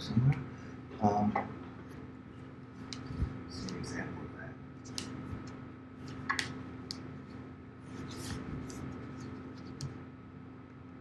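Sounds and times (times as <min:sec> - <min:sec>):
faint steady hum: 0:00.0 - 0:11.0
paper rustling: 0:07.9 - 0:10.0.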